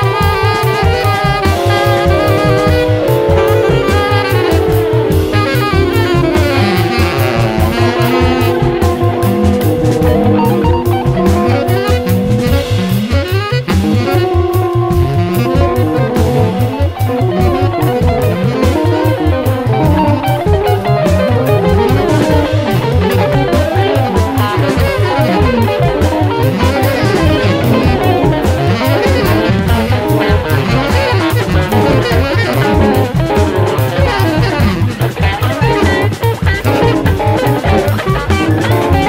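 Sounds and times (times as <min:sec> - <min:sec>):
drum kit: 0:00.0 - 0:39.0
electric guitar melody: 0:00.0 - 0:39.0
fast-pulsing low bass: 0:00.0 - 0:39.0.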